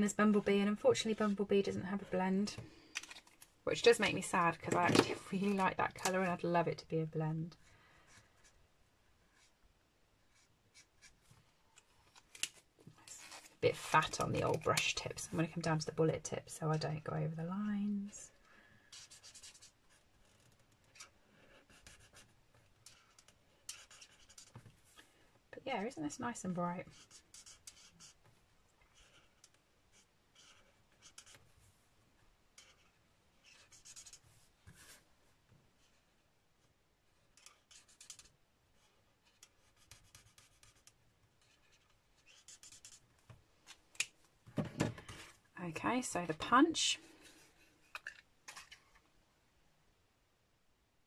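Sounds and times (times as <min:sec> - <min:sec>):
marker scratching on cardstock: 0:22.8 - 0:24.5, 0:26.8 - 0:28.2, 0:28.9 - 0:31.4, 0:32.6 - 0:34.2, 0:37.4 - 0:38.3, 0:39.2 - 0:43.0.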